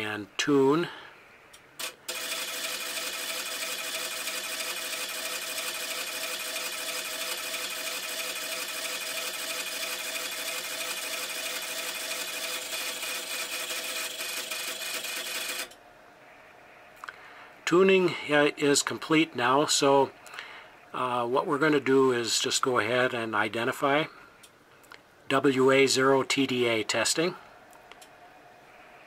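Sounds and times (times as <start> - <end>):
electrical hum: 0.0 - 29.0
antenna tuner rapid clicks: 1.5 - 15.8.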